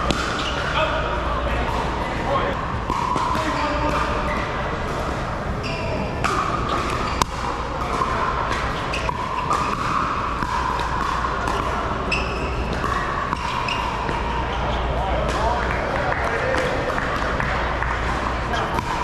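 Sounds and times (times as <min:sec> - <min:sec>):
paddles hitting plastic ball: 0:00.0 - 0:00.7, 0:06.2 - 0:14.3
background hubbub: 0:00.0 - 0:19.0.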